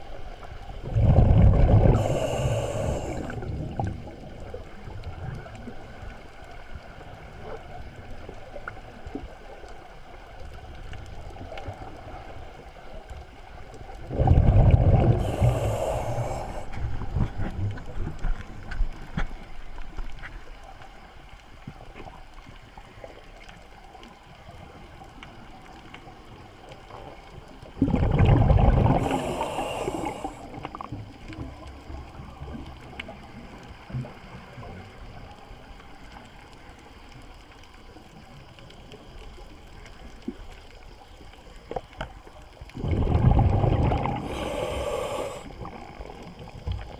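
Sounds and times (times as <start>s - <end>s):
faint underwater background: 0.0s - 46.9s
diver exhaling bubbles: 0.8s - 4.3s, 14.0s - 17.4s, 27.7s - 30.8s, 42.7s - 46.3s.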